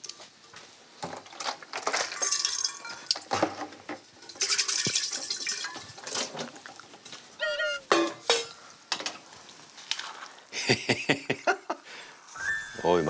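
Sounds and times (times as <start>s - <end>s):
metal jar clinks and knocks: 1.2s - 6.5s, 7.8s - 9.2s.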